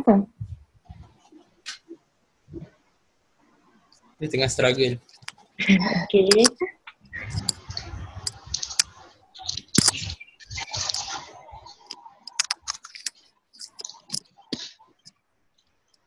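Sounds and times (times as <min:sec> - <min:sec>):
irregular clicks: 0:06.3 - 0:16.0.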